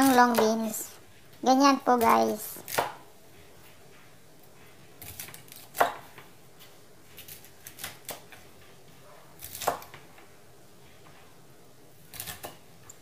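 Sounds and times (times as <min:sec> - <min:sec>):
knife chopping on wooden board: 0:02.6 - 0:03.0, 0:05.0 - 0:06.2, 0:09.4 - 0:10.0.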